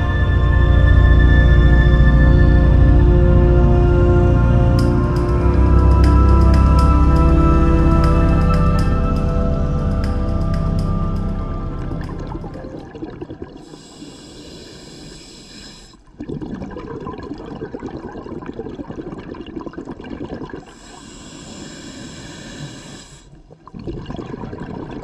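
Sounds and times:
exhaled air bubbling: 11.9 - 25.0
regulator air hiss: 13.7 - 16.0, 20.8 - 23.3.

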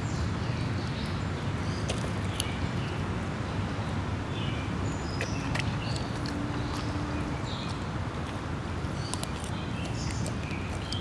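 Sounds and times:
birds chirping: 3.6 - 7.9, 8.9 - 11.0.

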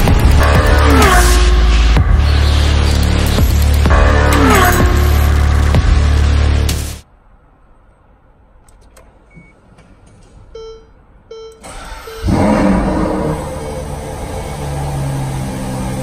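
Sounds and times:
music: 0.0 - 7.0
short electronic beeps: 10.6 - 12.3
car engine starting and revving: 11.6 - 16.0.

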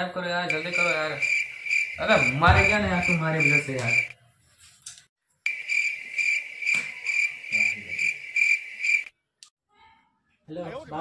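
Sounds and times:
crickets chirping: 0.5 - 4.1, 5.5 - 9.1.

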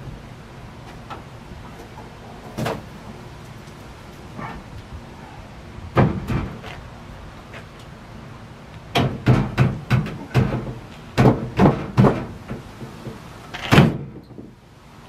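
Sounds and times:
wooden panel knocks and thumps: 6.0 - 6.6, 9.0 - 14.5.

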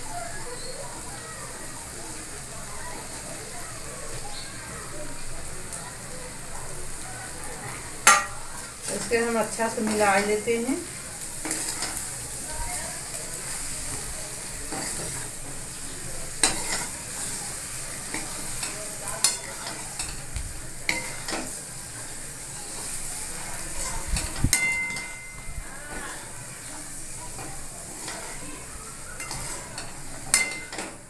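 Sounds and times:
food sizzling in oil: 0.0 - 31.0
spatula knocking and scraping pan: 8.0 - 10.3, 14.6 - 15.6, 16.4 - 17.4, 18.0 - 20.2, 20.9 - 21.6, 29.2 - 31.0.

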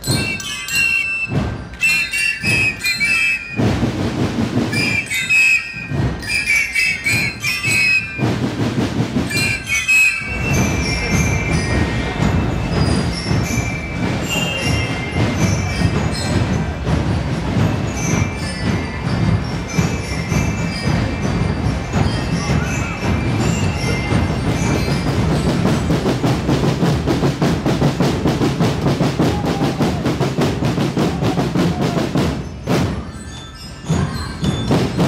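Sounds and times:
flutes playing shrill melody: 0.0 - 4.0, 4.6 - 8.5, 9.2 - 16.8
crowd noise: 0.0 - 35.0
marching band drums: 0.0 - 35.0.

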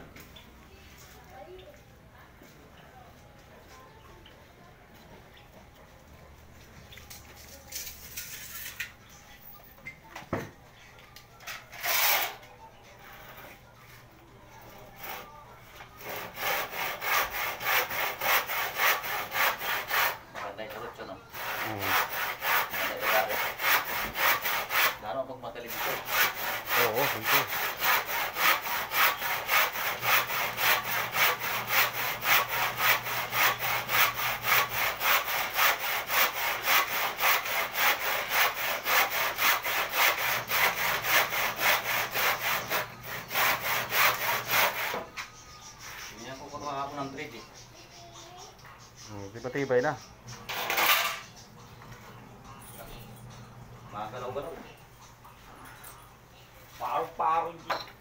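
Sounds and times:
hand saw cutting wood: 11.7 - 12.4, 16.0 - 45.1, 50.5 - 51.2.

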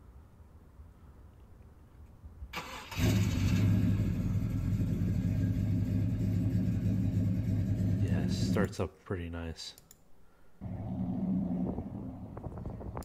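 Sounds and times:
engine idling: 3.0 - 8.7.

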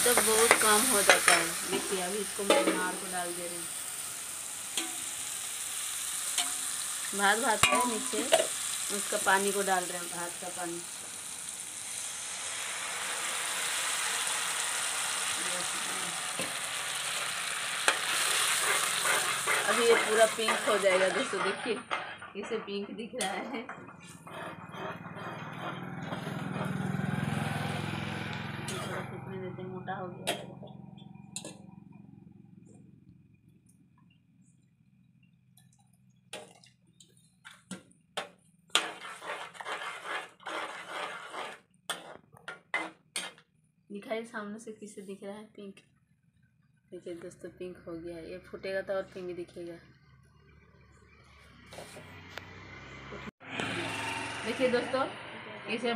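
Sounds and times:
metal scraping on pan: 0.0 - 3.5, 6.1 - 10.6, 12.4 - 27.1, 28.4 - 29.2, 37.5 - 43.4
liquid sizzling in hot oil: 0.0 - 22.3, 38.7 - 43.4
metal ladle clinking on pan: 7.6 - 8.5
sharp metal clank: 7.6 - 8.5.

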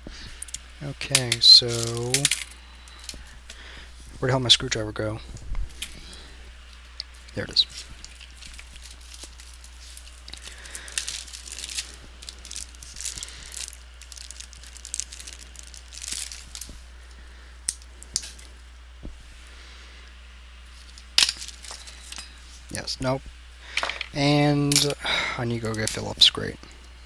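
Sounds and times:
plastic bag crinkling: 0.4 - 4.2, 5.4 - 18.7, 20.7 - 22.8.

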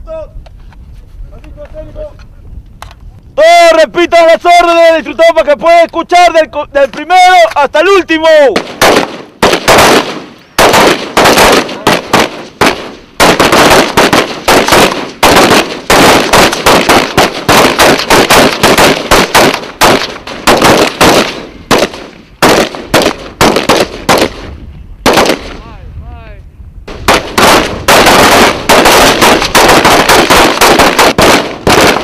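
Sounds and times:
rifle shots: 8.6 - 25.6, 26.9 - 32.0.

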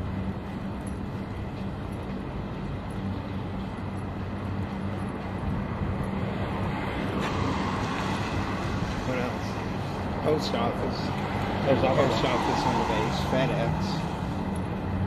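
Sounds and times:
road traffic noise: 0.0 - 15.0.

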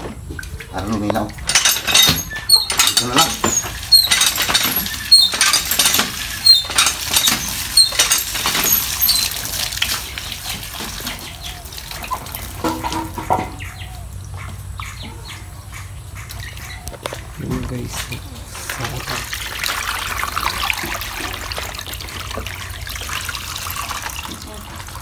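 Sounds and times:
water sloshing and splashing: 0.0 - 25.0
water pouring into plastic basin: 2.4 - 13.2, 18.5 - 25.0.

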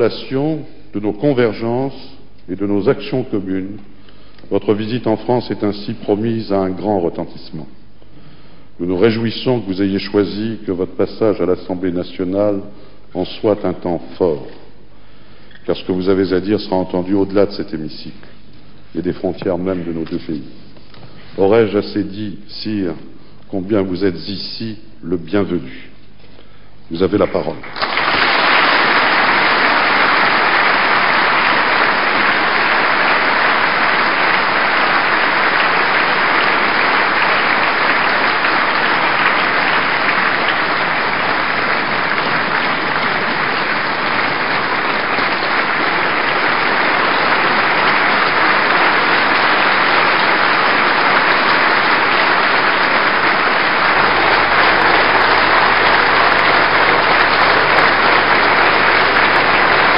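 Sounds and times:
large audience applauding: 27.2 - 59.9.

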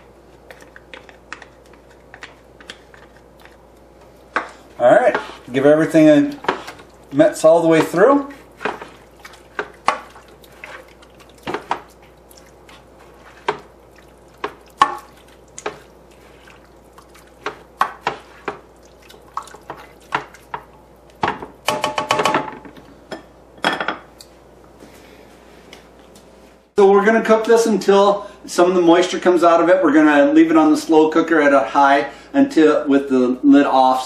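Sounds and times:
spoon stirring thick dip: 0.0 - 21.7
spoon scraping pot: 4.3 - 7.0, 7.6 - 20.7.

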